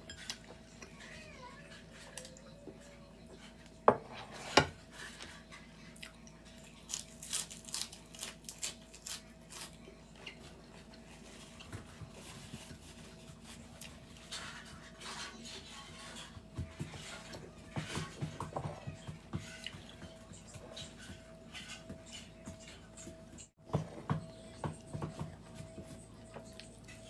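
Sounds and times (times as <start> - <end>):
crunching and chewing: 5.1 - 14.7.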